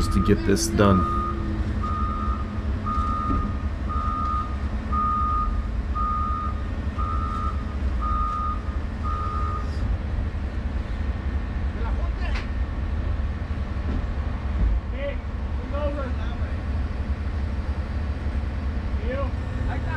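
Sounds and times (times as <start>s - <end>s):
diesel engine running: 0.0s - 8.1s
reversing alarm beeping: 0.0s - 9.7s.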